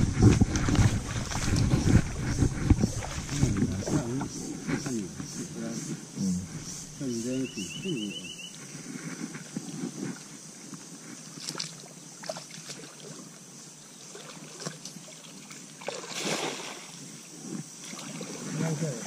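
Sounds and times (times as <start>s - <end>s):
feet sloshing through water: 0.0s - 5.1s, 11.2s - 13.4s, 14.1s - 16.9s, 17.8s - 18.6s
cast net splashing on water: 14.1s - 16.9s.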